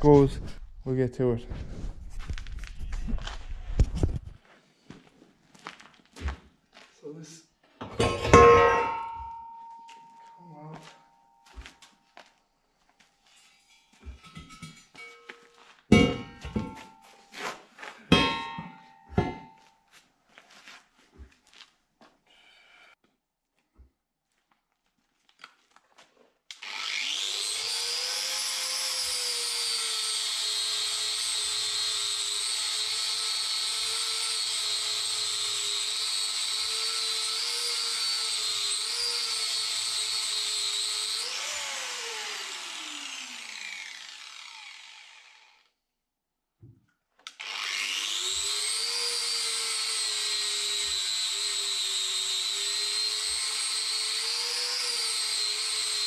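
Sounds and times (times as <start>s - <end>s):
angle grinder grinding steel: 7.8s - 11.7s, 26.5s - 45.7s, 47.3s - 56.0s
grinder winding down whine: 26.5s - 45.7s, 47.3s - 56.0s.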